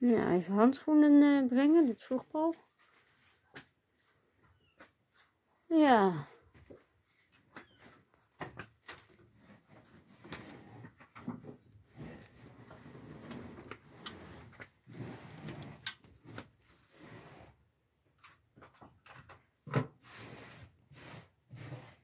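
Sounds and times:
rustling and scraping: 1.5s - 5.4s, 6.3s - 17.6s, 19.9s - 22.0s.

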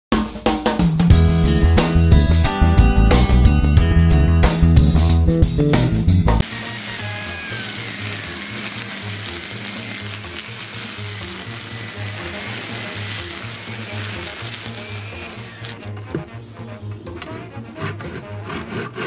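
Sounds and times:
electric string trimmer running: 6.4s - 15.8s
handsaw cutting wood: 6.4s - 15.8s, 17.6s - 19.0s.

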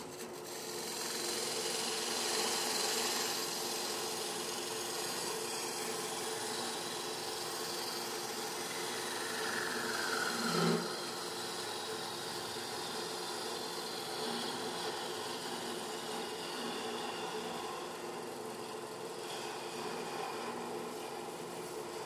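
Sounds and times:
lathe hum: 0.0s - 22.0s
tool scraping spinning wood: 0.0s - 22.0s.

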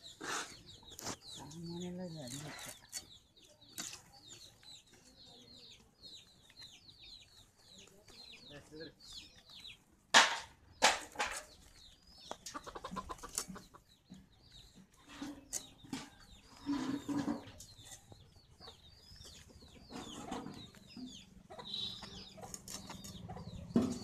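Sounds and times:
chickens clucking: 0.0s - 24.0s
sharp knocks: 10.1s - 11.5s.

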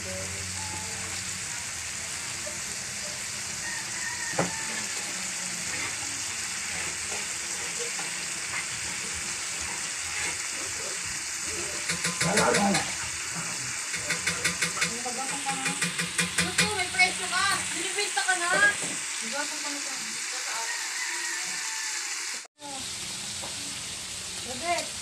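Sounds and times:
food sizzling in a wok: 0.0s - 25.0s
ladle scraping against pan: 3.9s - 16.8s
metal ladle knocking: 11.8s - 12.9s, 14.0s - 16.9s.

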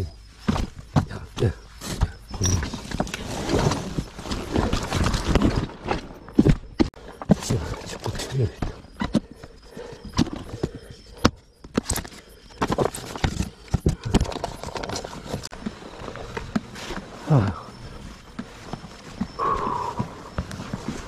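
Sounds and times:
plastic containers clattering: 7.2s - 16.9s.

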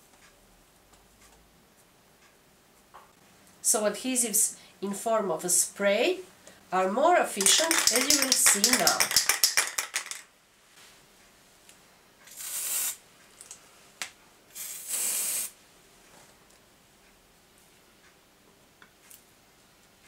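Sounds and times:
aerosol can rattling: 7.4s - 10.3s
spray hissing: 12.3s - 13.0s, 14.6s - 15.6s.

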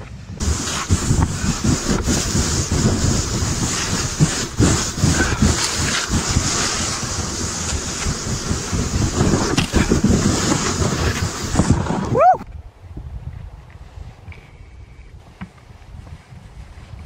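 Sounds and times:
wind on microphone: 0.0s - 17.0s
kayak hull scraping on snow: 0.4s - 12.2s.

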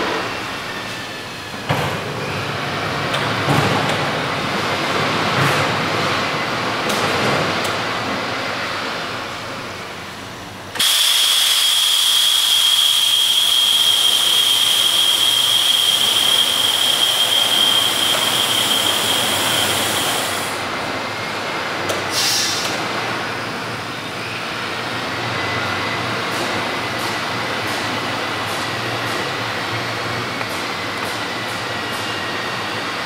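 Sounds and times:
vacuum forming machine hissing: 10.8s - 20.7s, 22.0s - 22.8s.

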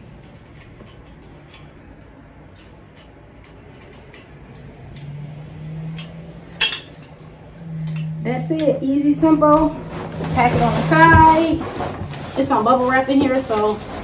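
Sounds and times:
low hum: 3.4s - 12.2s.

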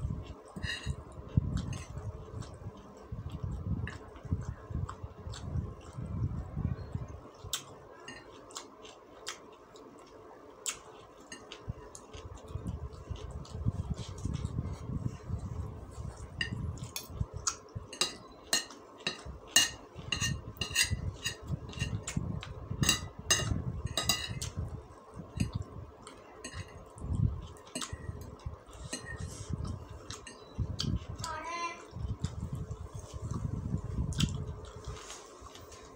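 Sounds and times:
cutlery clinking on plate: 22.8s - 24.4s
chewing: 31.9s - 35.9s.

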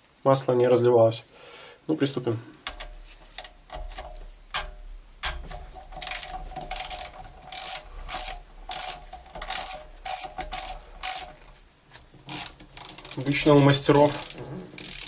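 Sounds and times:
ratchet pawl clicks: 4.5s - 11.6s, 12.2s - 15.0s.

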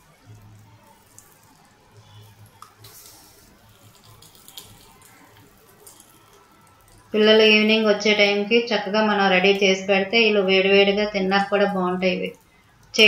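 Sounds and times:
batter sizzling in hot oil: 0.0s - 7.8s.

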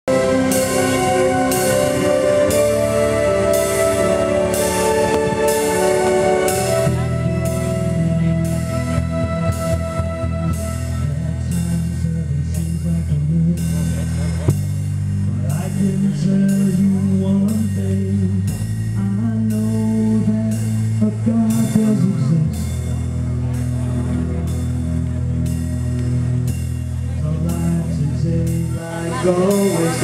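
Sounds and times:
sustained low chords: 0.0s - 30.0s
live rock music: 0.1s - 30.0s
drum kit beat: 0.5s - 10.8s, 12.6s - 23.0s.

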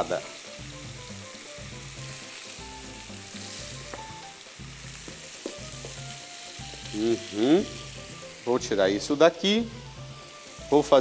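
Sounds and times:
fish sizzling in a pan: 0.0s - 11.0s.

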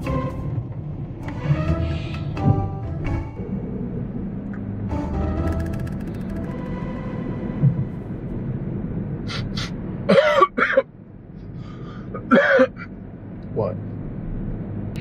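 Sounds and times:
engine and road hum: 0.0s - 15.0s
man coughing and gagging: 10.0s - 10.9s, 12.2s - 12.9s.

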